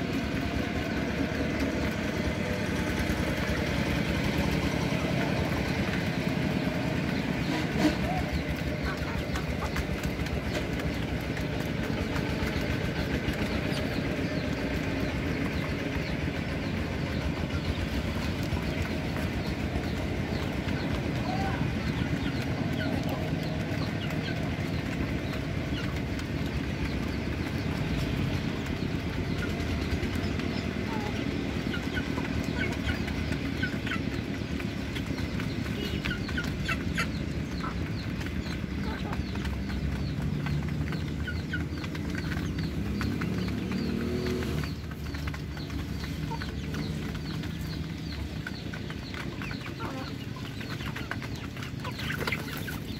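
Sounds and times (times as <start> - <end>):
chick peeps: 0.0 - 52.9
chickens pecking grain from metal pans: 0.0 - 52.9.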